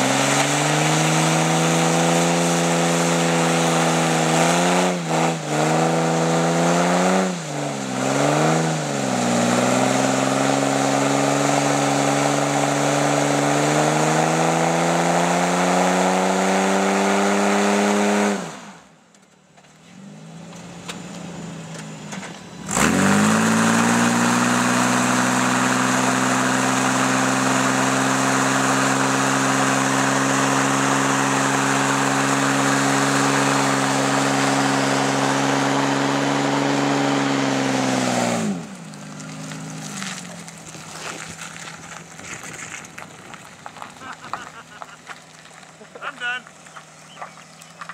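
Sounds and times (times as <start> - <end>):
car engine revving: 0.0 - 18.9, 19.8 - 47.9
tyres spinning on pavement: 38.7 - 47.9.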